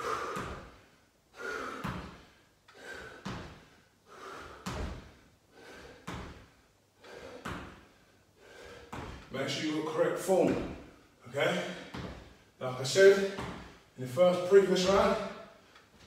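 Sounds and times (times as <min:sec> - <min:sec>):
hard breathing: 0:00.0 - 0:09.4
feet landing on rubber floor: 0:00.3 - 0:00.8, 0:01.8 - 0:02.3, 0:03.0 - 0:03.8, 0:04.5 - 0:06.6, 0:07.2 - 0:08.0, 0:08.7 - 0:09.3, 0:11.6 - 0:12.4, 0:13.2 - 0:13.8.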